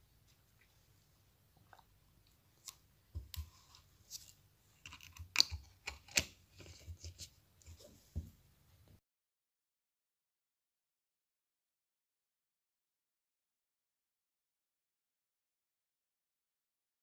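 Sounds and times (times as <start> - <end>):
plastic bottle crinkling and clicking: 4.2 - 6.8.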